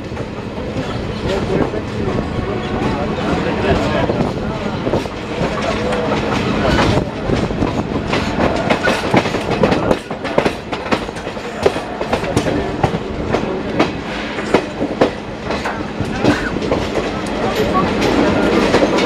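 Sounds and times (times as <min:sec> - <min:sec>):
train coach running noise: 0:00.0 - 0:19.0
train wheels clattering over rails: 0:00.0 - 0:19.0.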